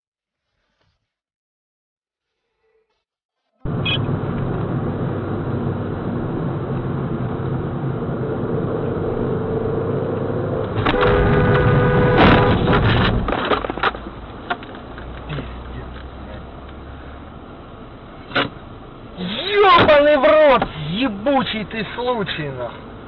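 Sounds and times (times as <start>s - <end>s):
car driving noise: 3.6s - 23.0s
sharp knocks and clatter: 12.2s - 15.2s.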